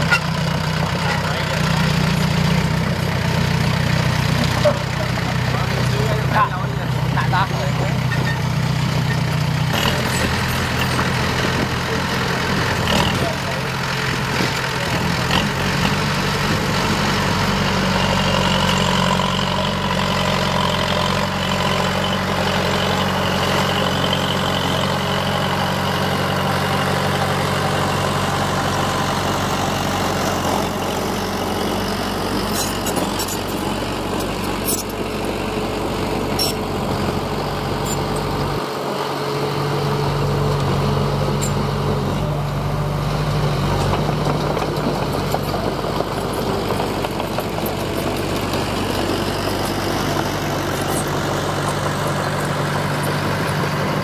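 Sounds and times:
heavy diesel engine running: 0.0s - 54.0s.

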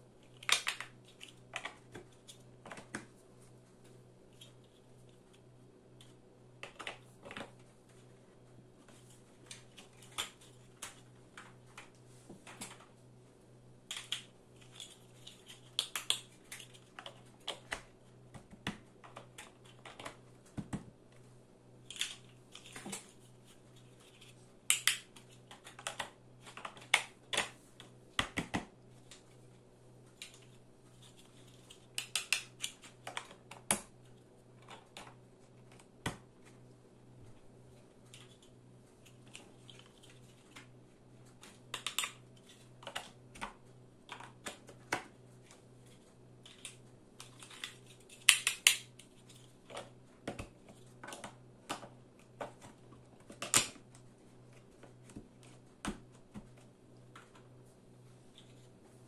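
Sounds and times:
plastic blocks snapping together: 0.4s - 2.1s, 15.6s - 20.9s, 24.7s - 27.6s, 32.0s - 33.9s, 41.7s - 42.2s, 46.5s - 49.0s, 49.8s - 53.8s.

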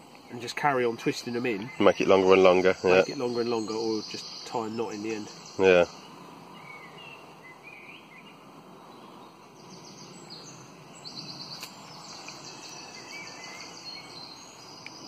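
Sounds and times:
background hiss: 0.0s - 15.0s
small birds chirping: 0.0s - 15.0s
faint click: 11.6s - 13.2s, 14.8s - 15.0s.

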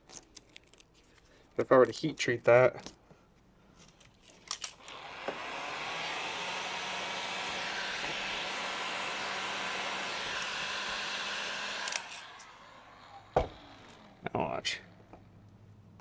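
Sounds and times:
heat gun blowing: 4.8s - 15.2s.

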